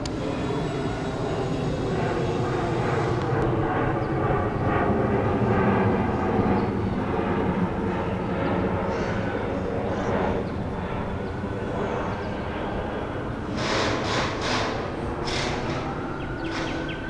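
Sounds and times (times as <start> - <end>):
jet airliner flying overhead: 0.0 - 17.0.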